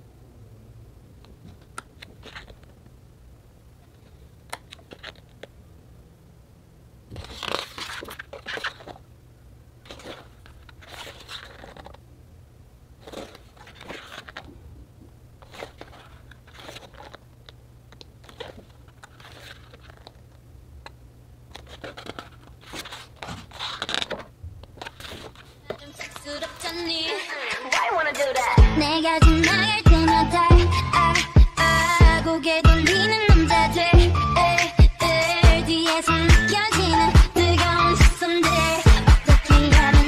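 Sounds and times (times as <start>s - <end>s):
faint low hum: 0.0s - 30.8s
book pages turning: 1.3s - 2.9s, 3.8s - 5.5s, 7.1s - 9.0s, 9.8s - 12.0s, 13.0s - 27.0s.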